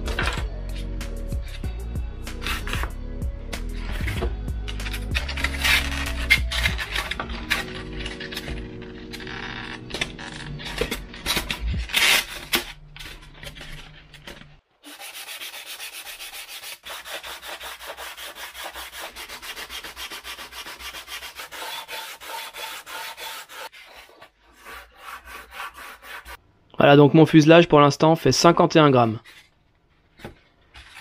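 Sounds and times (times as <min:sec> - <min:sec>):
sanding block on foam: 0:14.9 - 0:26.4.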